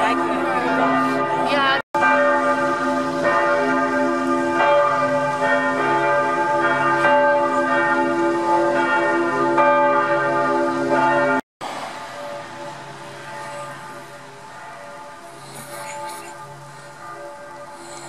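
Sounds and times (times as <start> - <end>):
church bells ringing: 0.0 - 18.0.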